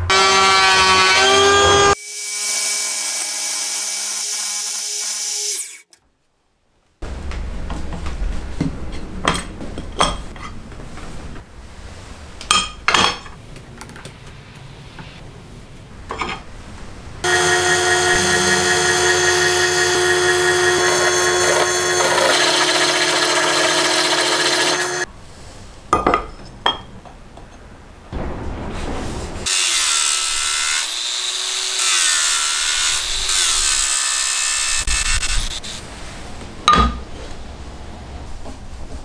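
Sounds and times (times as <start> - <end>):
drill press whining: 17.2 - 25.0.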